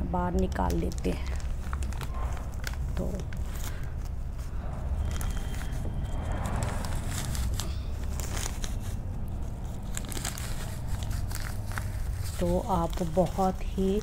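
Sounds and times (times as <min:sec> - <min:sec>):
plastic bag crinkling: 0:00.3 - 0:14.0
low hum: 0:01.7 - 0:12.2.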